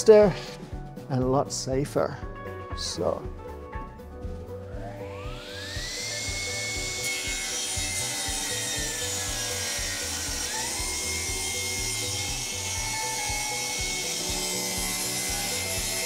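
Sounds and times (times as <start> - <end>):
table saw whining: 4.8 - 16.0
saw ripping wooden board: 5.6 - 16.0.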